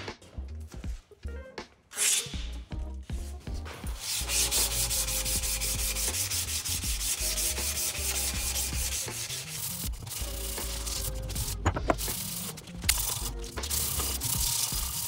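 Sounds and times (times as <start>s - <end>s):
sandpaper rasping on wood: 3.9s - 15.0s.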